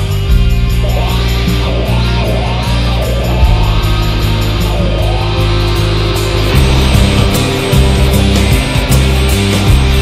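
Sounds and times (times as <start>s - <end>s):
loud rock music with guitar: 0.0s - 10.0s.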